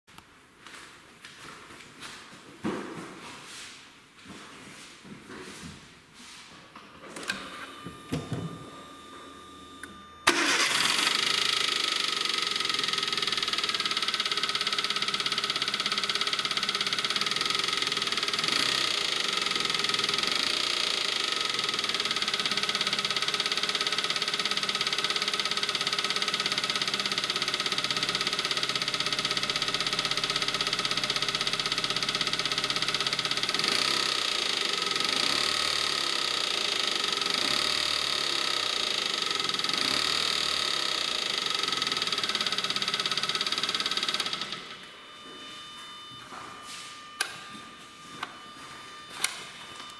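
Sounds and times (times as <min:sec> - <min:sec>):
car engine cranking and idling: 0:07.2 - 0:44.9.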